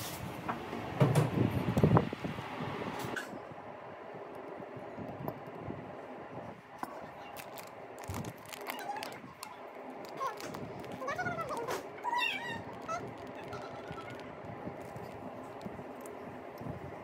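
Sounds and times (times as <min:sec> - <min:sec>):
low room hum: 0:00.0 - 0:17.0
faint squeaky calls: 0:08.5 - 0:15.2.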